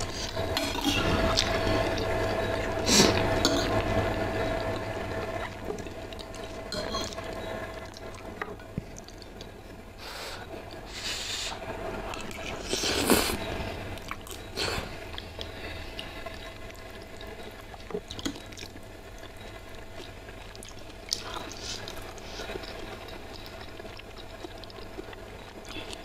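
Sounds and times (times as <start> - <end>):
person slurping noodles: 12.5 - 13.4.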